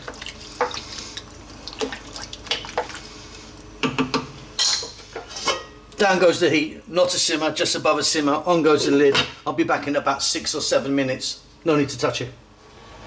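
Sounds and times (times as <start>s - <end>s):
soup sloshing: 0.0s - 3.7s.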